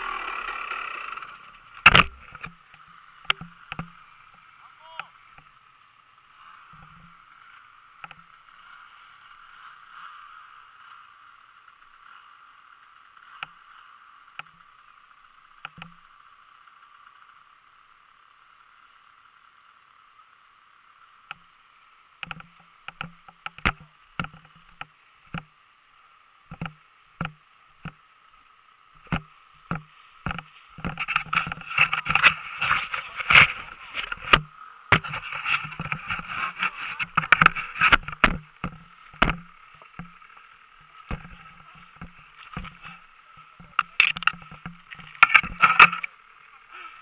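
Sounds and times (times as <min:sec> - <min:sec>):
faint steady hiss: 0:00.0 - 0:47.0
camera knocks and thumps: 0:01.8 - 0:02.6, 0:29.0 - 0:40.2, 0:41.1 - 0:43.0, 0:43.6 - 0:46.1.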